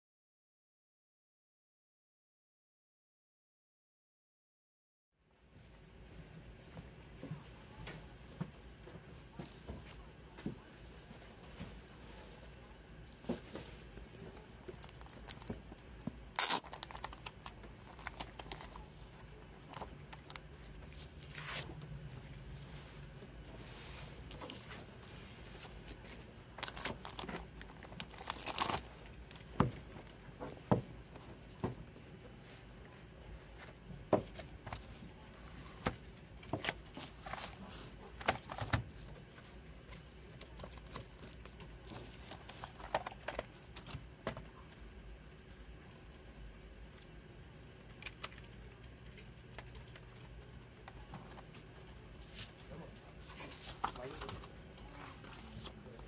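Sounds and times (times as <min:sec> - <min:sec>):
plastic shrink-wrap crinkling: 0:14.4 - 0:18.9, 0:26.5 - 0:29.4.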